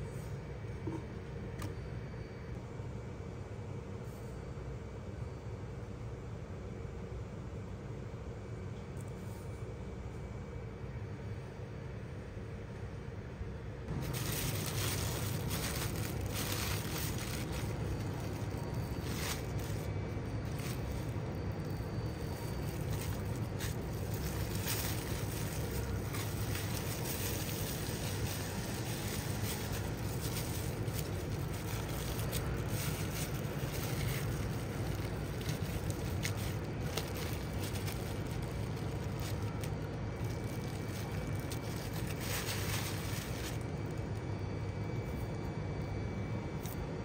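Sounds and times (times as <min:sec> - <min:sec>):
steady low rumble: 0:13.8 - 0:46.6
plastic bag crinkling: 0:13.9 - 0:44.2.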